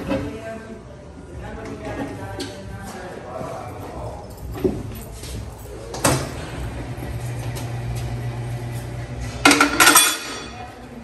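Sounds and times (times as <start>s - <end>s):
metal clanking and clinking: 9.4s - 10.6s.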